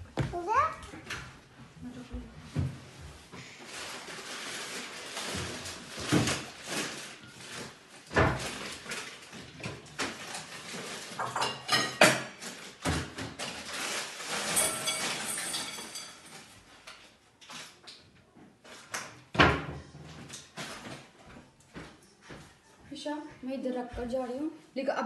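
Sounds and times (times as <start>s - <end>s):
scraping and rustling: 2.4s - 17.8s
knocks and clinks: 14.4s - 16.4s.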